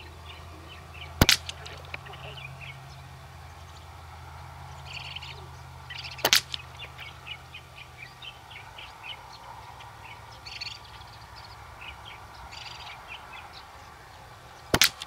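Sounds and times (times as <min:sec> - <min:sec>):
birds chirping: 0:00.0 - 0:15.0
air rifle shot: 0:01.2 - 0:02.0, 0:06.1 - 0:06.6, 0:14.7 - 0:15.0.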